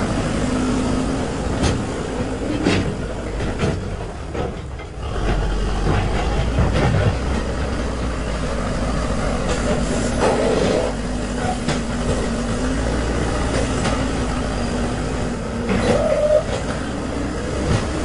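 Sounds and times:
diesel engine running: 0.0s - 18.0s.

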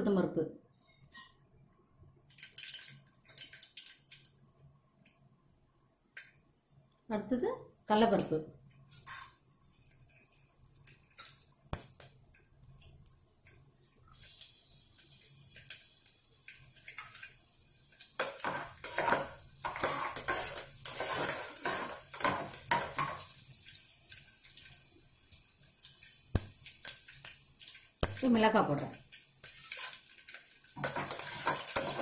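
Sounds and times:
seeds sizzling in hot oil: 2.4s - 32.0s
metal spatula scraping a pot: 8.9s - 9.4s, 18.4s - 23.1s, 29.5s - 30.0s, 30.8s - 32.0s.

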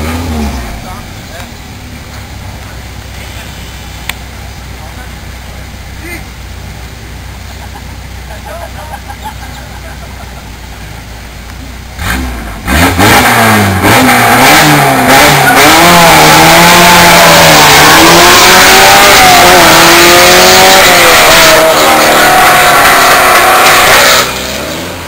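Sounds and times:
race car engine revving: 0.0s - 8.4s, 11.8s - 25.0s.

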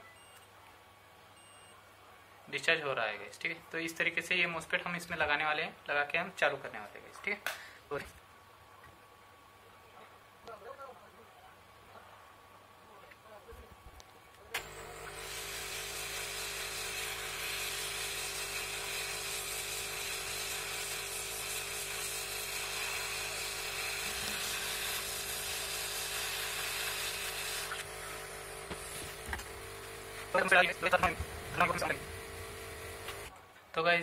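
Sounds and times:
hot-air station hissing: 14.6s - 33.3s.

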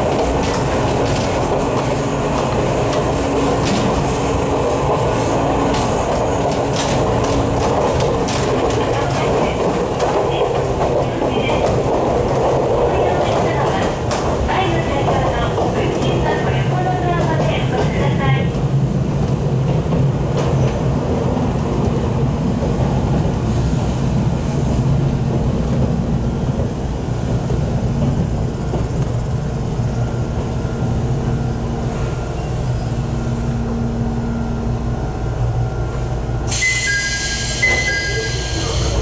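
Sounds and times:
train wheels rumbling on rail: 0.0s - 39.0s.

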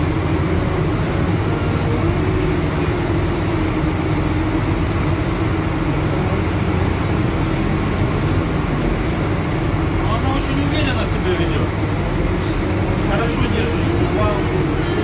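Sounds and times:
boat diesel engines droning: 0.0s - 15.0s.

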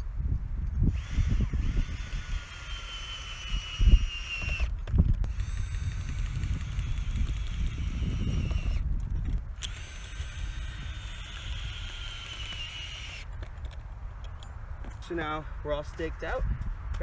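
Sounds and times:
cordless drill whining: 0.8s - 8.9s, 9.6s - 13.3s.

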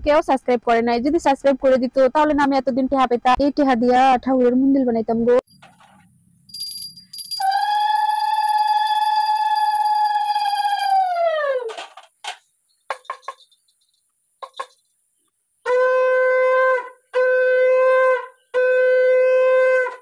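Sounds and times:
small knocks: 11.7s - 14.8s
conch shell blasts: 15.6s - 20.0s.

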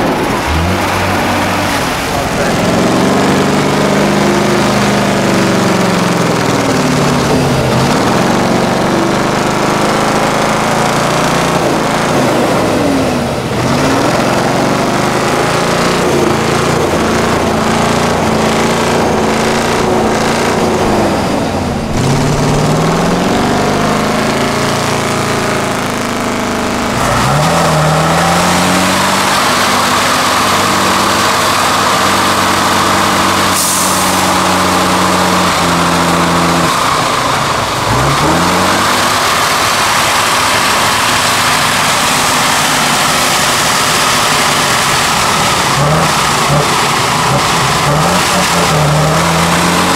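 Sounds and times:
diesel truck engine under load: 0.0s - 49.9s.

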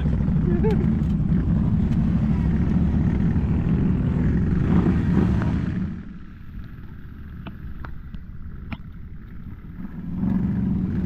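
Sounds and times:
atv engine revving: 0.0s - 6.2s, 8.4s - 11.0s.

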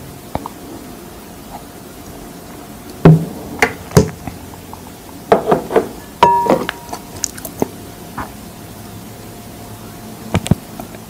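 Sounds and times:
glass clink ringing: 6.2s - 7.1s.

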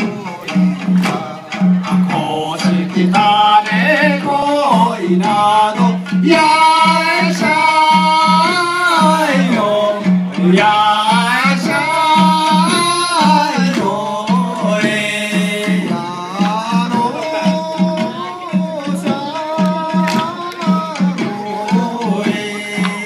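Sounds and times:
steady drum beat: 0.0s - 23.0s
person singing wavering melody: 10.8s - 23.0s.

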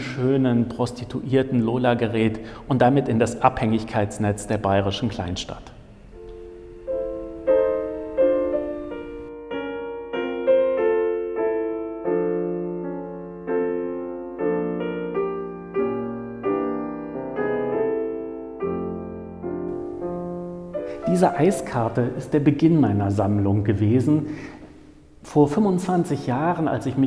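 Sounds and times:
calm solo piano piece: 6.2s - 22.4s.

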